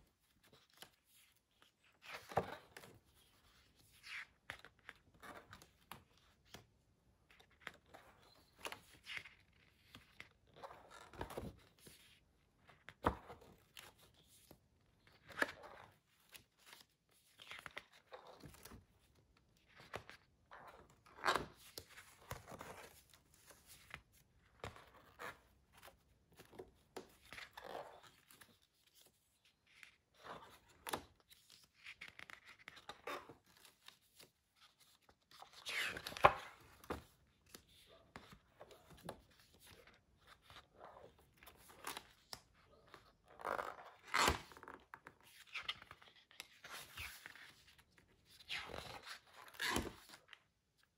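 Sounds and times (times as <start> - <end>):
page flips: 19.7 - 50.4.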